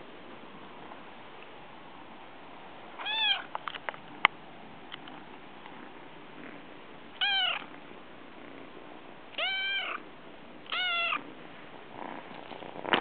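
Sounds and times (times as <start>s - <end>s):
kitten meowing: 3.0s - 3.5s, 7.2s - 7.7s, 9.3s - 10.0s, 10.7s - 11.2s.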